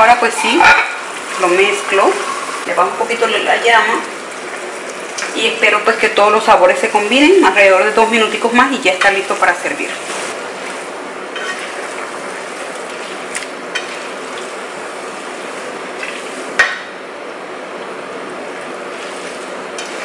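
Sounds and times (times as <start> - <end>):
pasta sizzling in a frying pan: 0.0 - 17.1, 18.2 - 20.0
utensils scraping a pan: 11.4 - 11.8.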